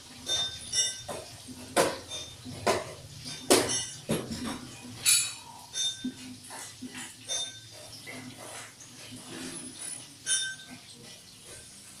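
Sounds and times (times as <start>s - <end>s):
clinks and knocks with ringing tones: 0.0s - 11.8s.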